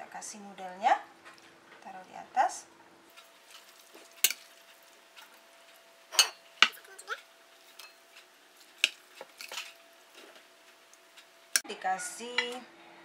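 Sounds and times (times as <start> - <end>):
metal tongs clinking on dishes: 3.2 - 6.9, 7.6 - 8.2, 8.8 - 9.8.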